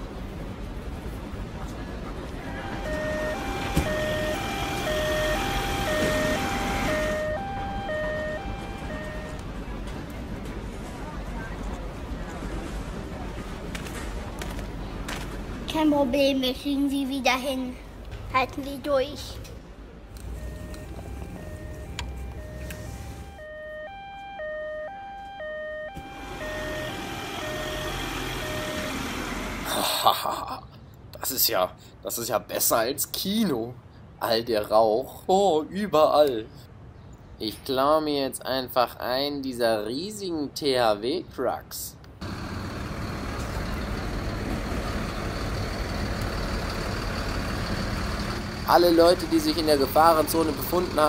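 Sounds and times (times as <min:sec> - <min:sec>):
heavy truck engine rumbling: 0:00.0 - 0:30.0, 0:42.2 - 0:51.0
two-tone ambulance siren: 0:02.4 - 0:09.4, 0:20.3 - 0:29.7.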